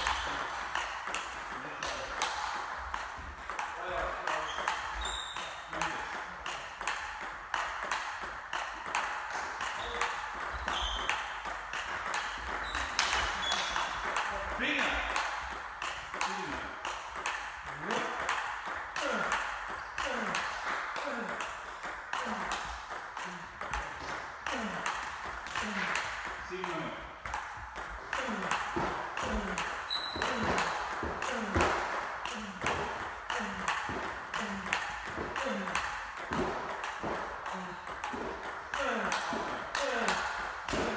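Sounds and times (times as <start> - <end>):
table tennis ball clicking: 0.0 - 14.3
high squeak: 4.5 - 5.5.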